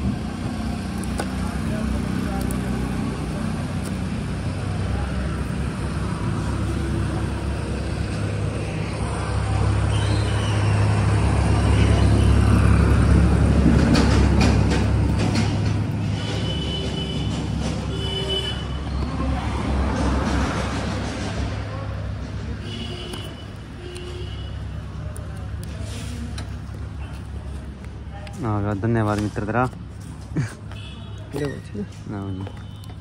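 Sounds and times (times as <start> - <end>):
motor vehicles rumbling: 0.0 - 33.0.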